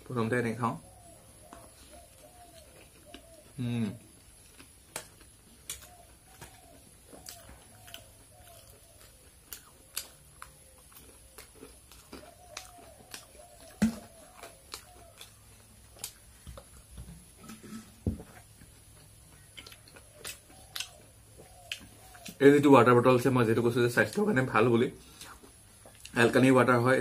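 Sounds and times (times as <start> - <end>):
bird cooing: 0.8 - 4.0, 5.8 - 9.9, 12.2 - 15.5, 20.0 - 22.4
chewing: 1.4 - 22.4, 25.0 - 26.4.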